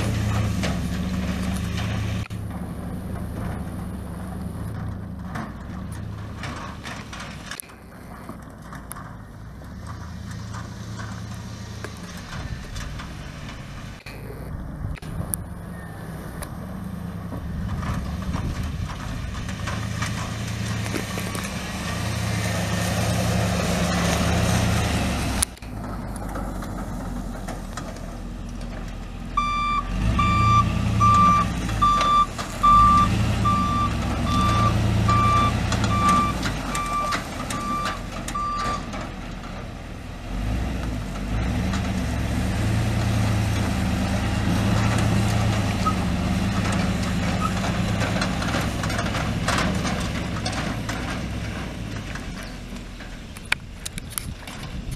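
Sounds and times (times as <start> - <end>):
truck engine running: 0.0 - 54.9
reversing alarm beeping: 29.4 - 38.9.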